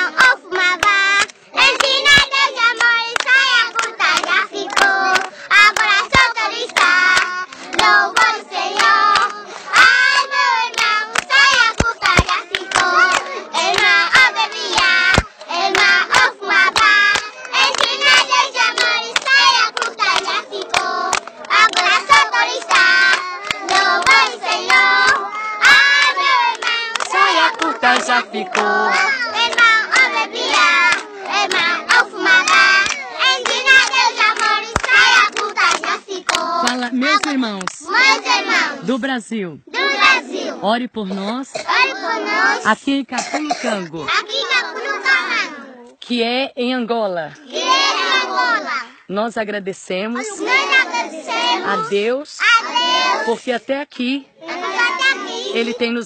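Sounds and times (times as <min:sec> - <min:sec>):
children singing: 0:00.0 - 0:36.8, 0:37.8 - 0:38.9, 0:39.7 - 0:40.6, 0:41.6 - 0:42.7, 0:44.0 - 0:45.9, 0:47.4 - 0:48.9, 0:50.3 - 0:53.4, 0:54.4 - 0:55.8
hands clapping: 0:00.0 - 0:38.6.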